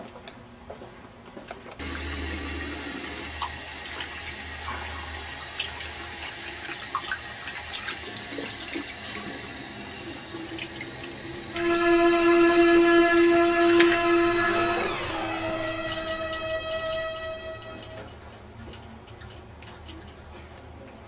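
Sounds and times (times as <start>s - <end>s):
water running: 1.8s - 18.1s.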